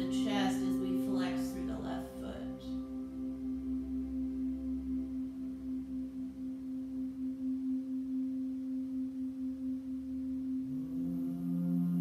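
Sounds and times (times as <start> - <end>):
singing bowl tone: 0.0 - 12.0.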